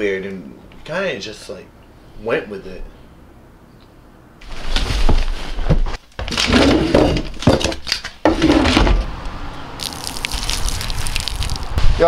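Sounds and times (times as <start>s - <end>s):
knocks and thumps: 4.8s - 9.1s.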